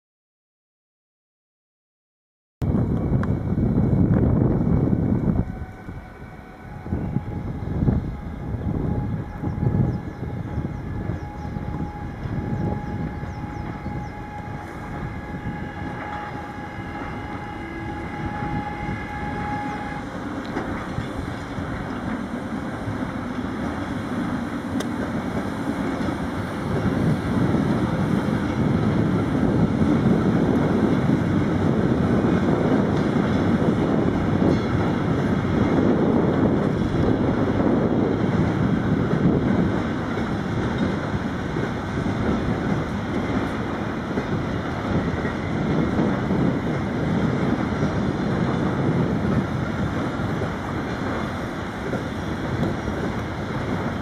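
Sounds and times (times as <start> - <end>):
train rumbling past: 2.6 - 54.0
high-pitched tone: 3.2 - 20.7.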